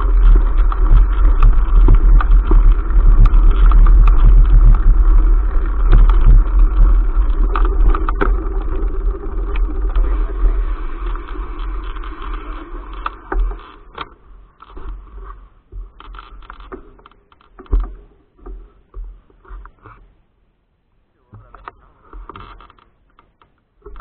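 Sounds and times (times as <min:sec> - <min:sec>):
wind noise on microphone: 0:00.0 - 0:16.8
bike knocks and rattles: 0:00.0 - 0:20.2, 0:21.3 - 0:24.0.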